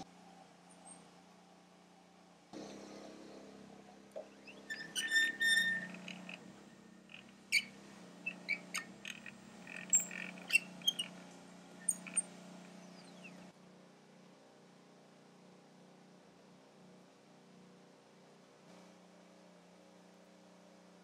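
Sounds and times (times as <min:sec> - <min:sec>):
spindle hum: 0:02.6 - 0:13.5
stepper motor chirps and ticks: 0:04.3 - 0:13.5.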